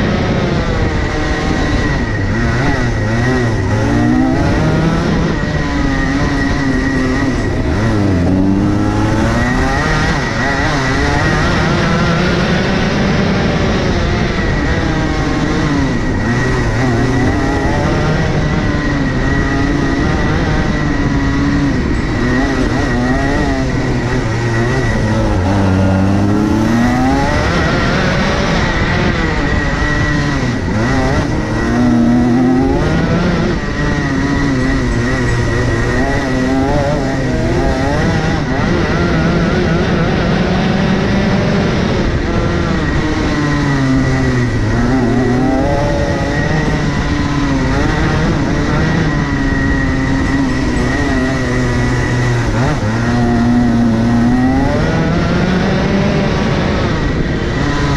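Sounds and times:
kart engine revving: 0:00.0 - 0:57.9
steady high whine: 0:00.0 - 0:57.9.

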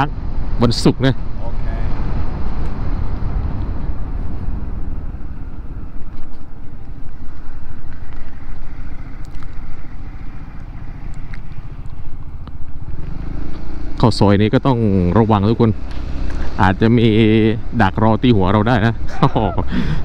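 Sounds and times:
wind rushing: 0:00.2 - 0:07.8.

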